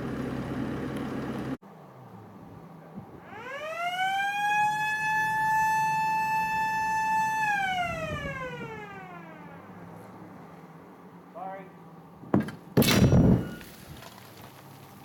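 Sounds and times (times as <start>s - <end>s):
warning siren winding: 3.2s - 9.9s.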